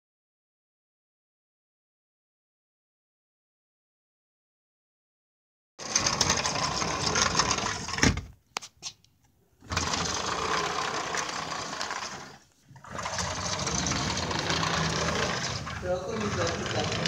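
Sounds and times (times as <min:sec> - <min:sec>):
sliding door grinding rattle: 0:05.8 - 0:08.3, 0:09.6 - 0:17.0.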